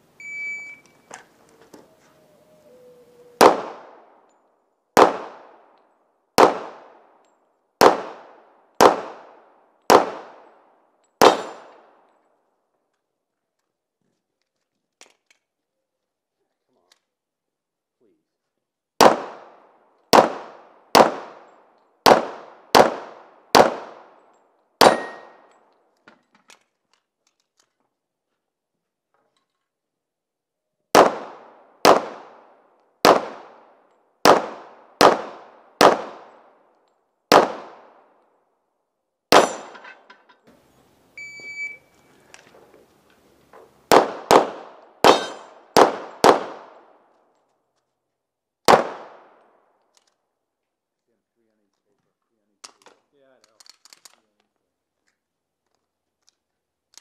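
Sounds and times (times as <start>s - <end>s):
faint beep: 0.2s - 1.2s, 41.2s - 42.1s
pistol shots: 3.4s - 4.2s, 5.0s - 5.7s, 6.4s - 7.2s, 7.8s - 10.6s, 11.2s - 12.0s, 19.0s - 25.5s, 30.9s - 36.6s, 37.3s - 38.1s, 39.3s - 39.8s, 43.9s - 47.0s, 48.6s - 49.6s.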